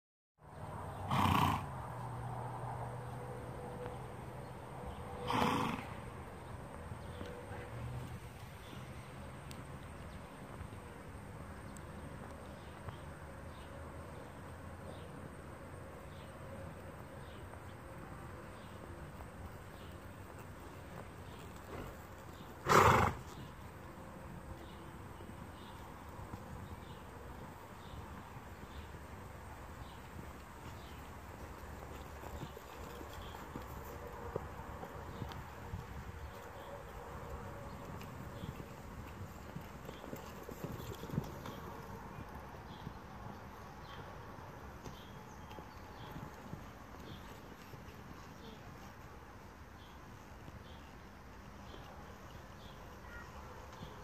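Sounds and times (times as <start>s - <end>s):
horse snorting: 1.0s - 1.7s, 5.2s - 6.0s, 22.6s - 23.4s
horse hoofbeats on sand: 16.9s - 54.0s.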